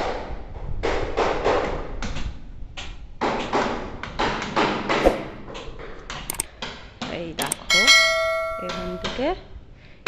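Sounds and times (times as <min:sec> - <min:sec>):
knocking and tapping construction work: 0:00.8 - 0:07.6.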